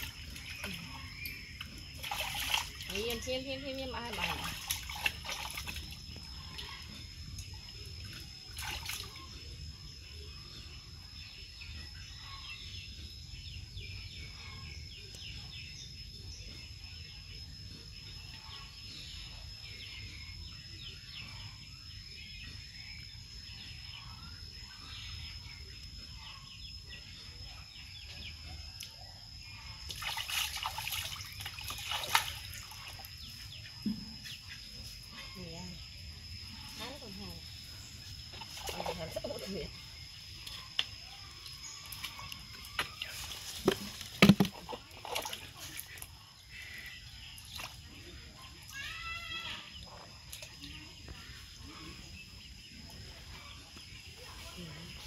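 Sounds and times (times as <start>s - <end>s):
water sloshing in a plastic tub: 0.0s - 9.4s, 29.4s - 35.1s, 36.7s - 49.0s.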